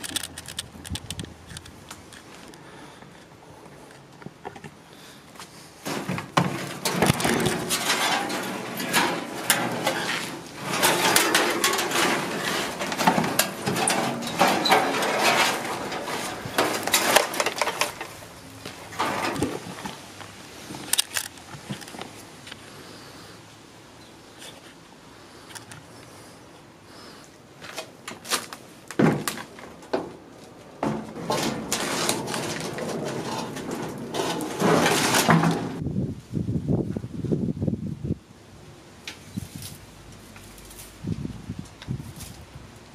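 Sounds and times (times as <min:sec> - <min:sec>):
branches and leaves rustling: 0:00.0 - 0:42.9
wire mesh rattling and scraping: 0:05.8 - 0:22.2, 0:27.7 - 0:35.8.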